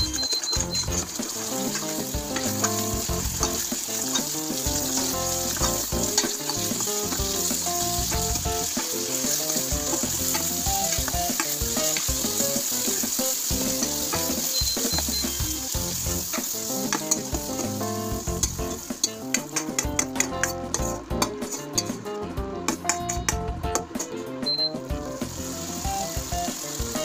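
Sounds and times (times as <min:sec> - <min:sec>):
paste sizzling in a pan: 0:00.0 - 0:21.9, 0:25.1 - 0:27.0
metal spoon stirring: 0:00.1 - 0:12.1, 0:16.3 - 0:17.4.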